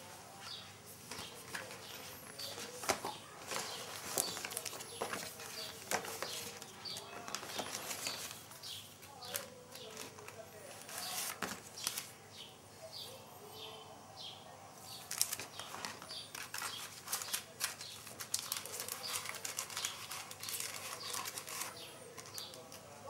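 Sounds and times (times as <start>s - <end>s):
paper packaging rustling: 0.0s - 12.2s, 14.9s - 23.0s.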